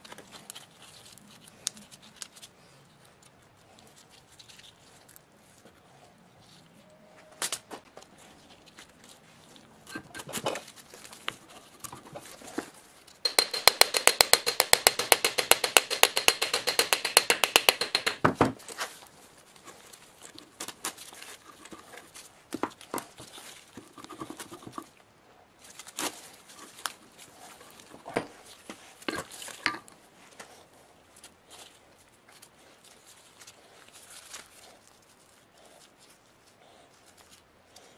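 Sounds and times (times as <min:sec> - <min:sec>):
metal parts clicking and knocking: 0:13.1 - 0:18.6
rapid metallic clicks: 0:13.2 - 0:18.2.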